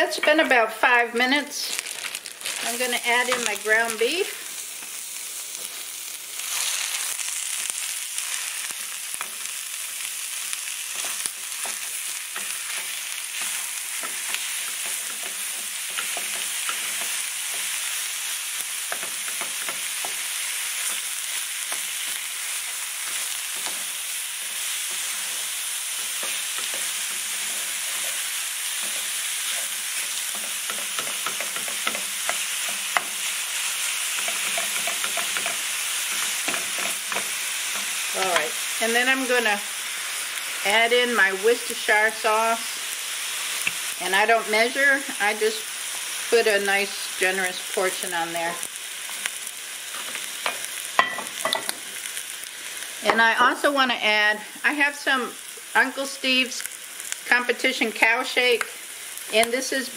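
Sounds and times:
meat sizzling in a skillet: 0.0s - 59.9s
spatula scraping and tapping pan: 10.9s - 17.8s, 18.9s - 20.2s, 26.0s - 33.3s, 34.1s - 38.6s.

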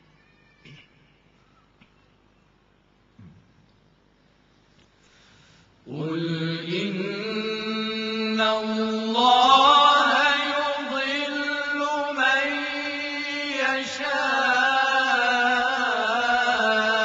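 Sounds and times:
men chanting together melodically: 5.9s - 17.0s.

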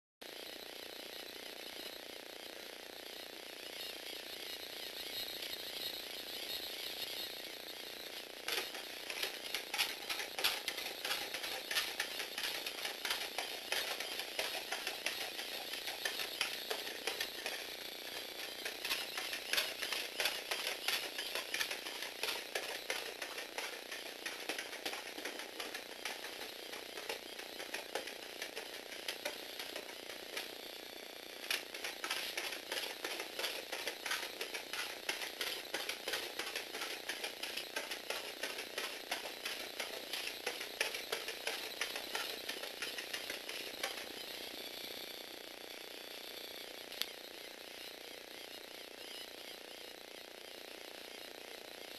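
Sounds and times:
robot motor and gears clattering: 8.0s - 30.8s, 31.4s - 44.8s.

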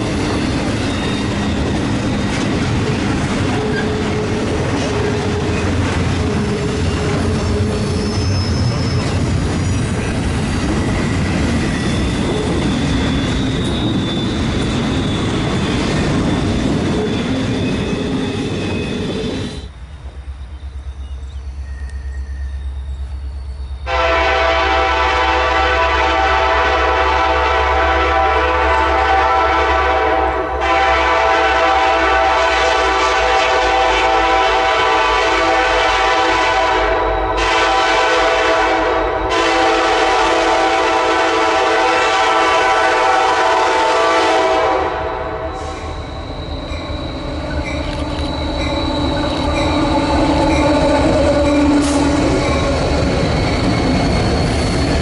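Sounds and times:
passing train rumble and wheel noise: 0.0s - 55.0s
locomotive horn blowing: 23.9s - 45.9s.

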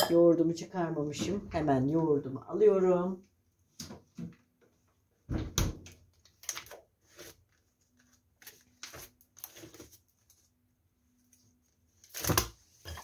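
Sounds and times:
fridge door shutting: 5.3s - 5.8s.

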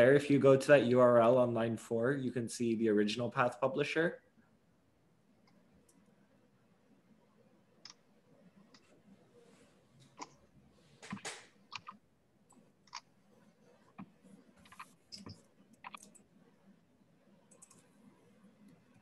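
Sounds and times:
computer mouse and keyboard clicks: 10.0s - 10.4s, 11.0s - 13.2s, 13.8s - 16.4s, 17.4s - 19.0s.

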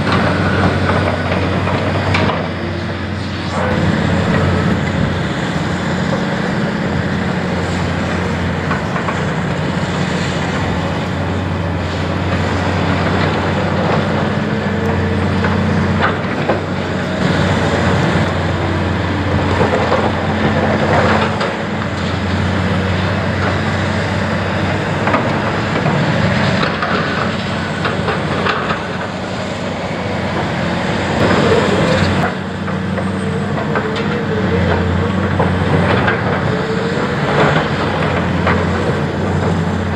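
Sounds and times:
diesel excavator engine running: 0.0s - 39.9s.

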